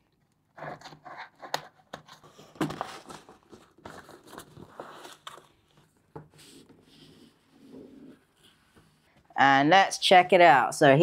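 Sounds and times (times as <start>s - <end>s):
cardboard and packaging rustling: 0.5s - 9.2s.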